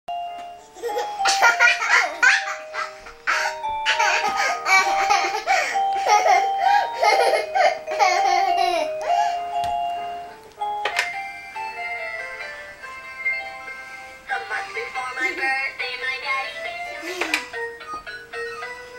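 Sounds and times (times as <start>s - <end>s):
toy keyboard electronic tune: 0.1s - 14.9s, 15.8s - 18.9s
toddler laughing and squealing: 0.7s - 8.9s.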